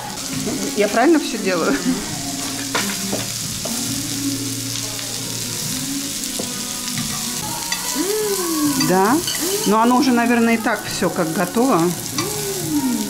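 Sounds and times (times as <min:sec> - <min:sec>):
meat sizzling on grill: 0:00.0 - 0:13.0
metal tongs clicking: 0:12.1 - 0:12.4.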